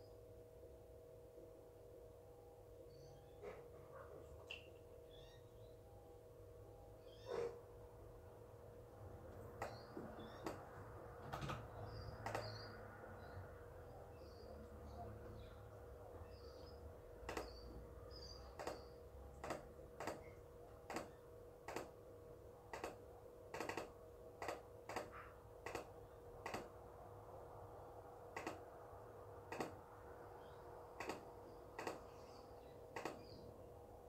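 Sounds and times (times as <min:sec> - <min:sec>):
computer mouse clicks: 0:12.2 - 0:12.6, 0:17.3 - 0:17.6, 0:18.6 - 0:20.3, 0:20.9 - 0:21.9, 0:22.7 - 0:26.8, 0:28.4 - 0:28.6, 0:29.5 - 0:29.8, 0:31.0 - 0:32.2, 0:33.0 - 0:33.4.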